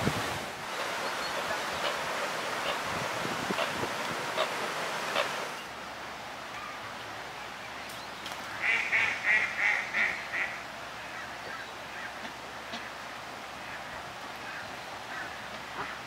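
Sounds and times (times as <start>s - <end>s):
waterfowl calling: 0.7s - 5.6s, 8.5s - 13.0s, 13.6s - 16.0s.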